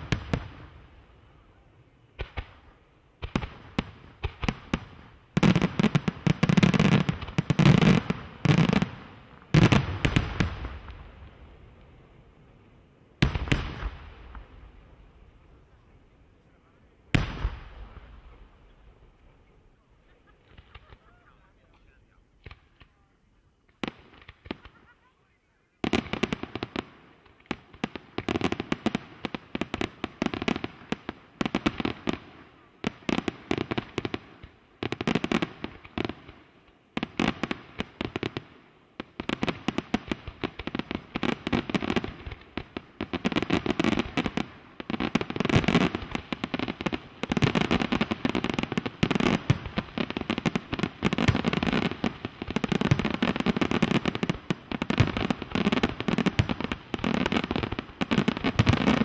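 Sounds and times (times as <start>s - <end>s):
fireworks bangs and crackle: 0.0s - 12.6s, 13.2s - 25.1s, 25.8s - 59.0s.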